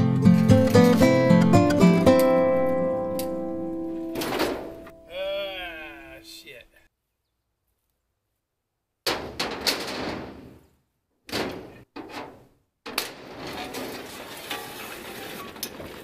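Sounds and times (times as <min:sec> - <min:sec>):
metal clanking and scraping: 0:00.2 - 0:02.3, 0:04.0 - 0:05.0, 0:09.1 - 0:10.6, 0:11.3 - 0:16.0.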